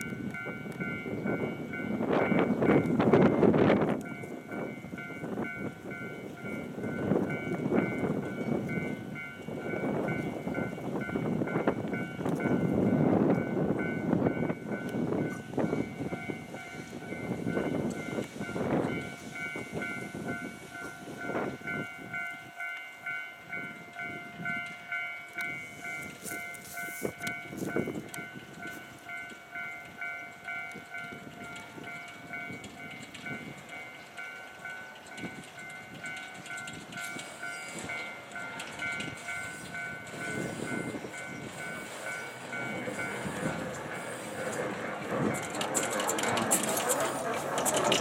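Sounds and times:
level crossing warning bell: 0:00.0 - 0:48.0
steam locomotive chuffing: 0:24.4 - 0:48.0.

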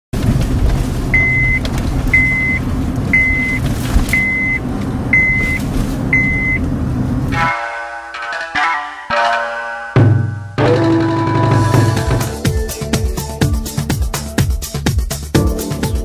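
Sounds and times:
low engine rumble: 0:00.2 - 0:07.4
reversing alarm beeps: 0:01.2 - 0:01.6, 0:02.2 - 0:02.6, 0:03.2 - 0:03.6, 0:04.2 - 0:04.6, 0:05.2 - 0:05.6, 0:06.2 - 0:06.6
music: 0:07.3 - 0:16.0.

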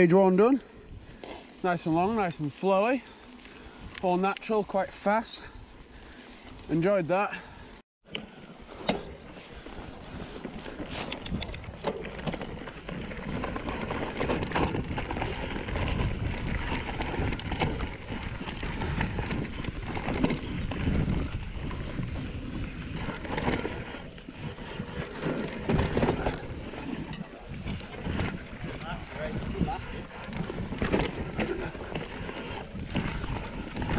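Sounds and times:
bike tyres rolling over dirt: 0:00.9 - 0:33.9
bike frame rattling: 0:08.8 - 0:33.9.

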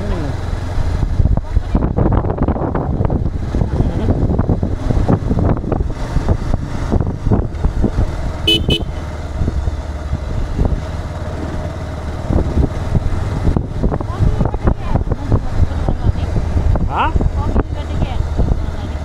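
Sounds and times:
engine and road rumble: 0:00.0 - 0:19.0
wind buffeting microphone: 0:00.8 - 0:08.6, 0:09.2 - 0:19.0
car horn toots: 0:08.4 - 0:09.0.

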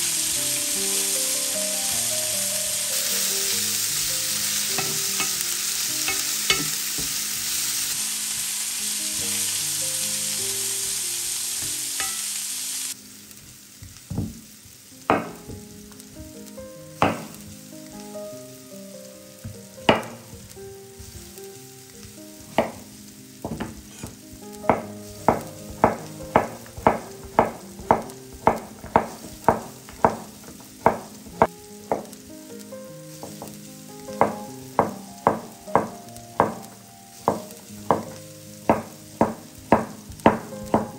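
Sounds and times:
soft background music: 0:00.0 - 0:40.9
vegetables sizzling in oil: 0:00.0 - 0:40.9
sharp kitchen knocks: 0:04.8 - 0:05.4, 0:06.1 - 0:07.2, 0:14.1 - 0:14.4, 0:15.1 - 0:15.7, 0:17.0 - 0:17.4, 0:19.9 - 0:20.2, 0:22.6 - 0:32.1, 0:34.2 - 0:36.6, 0:37.3 - 0:40.9.

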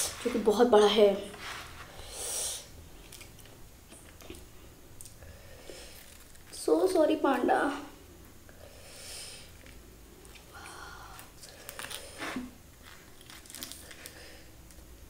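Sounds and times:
fingers tearing bread: 0:11.2 - 0:14.2.

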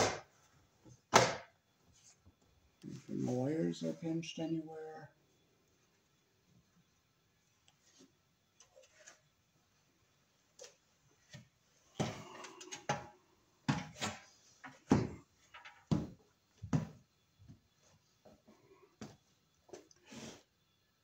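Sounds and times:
objects knocking and clunking: 0:00.0 - 0:01.6, 0:10.6 - 0:17.7.

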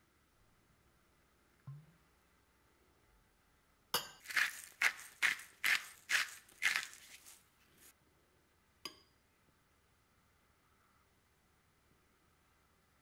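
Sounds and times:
spoon scraping bowl: 0:04.2 - 0:07.9.

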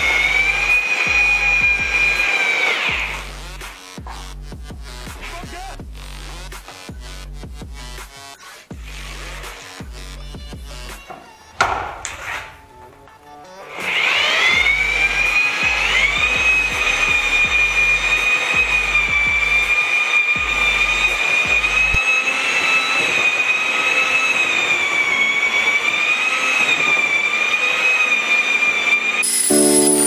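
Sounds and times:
electric mixer motor whine: 0:00.0 - 0:03.3, 0:13.8 - 0:30.0.

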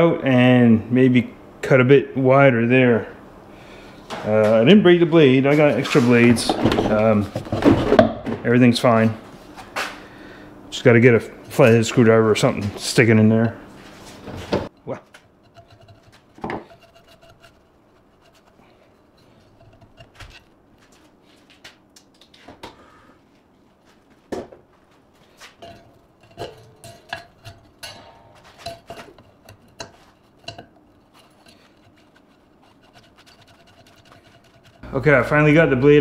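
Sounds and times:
metal hand tools clinking: 0:25.6 - 0:30.8.

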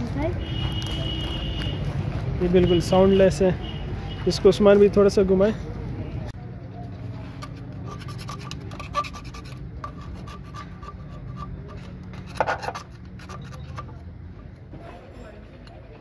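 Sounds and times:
metal parts rubbing and scraping: 0:07.0 - 0:14.1.

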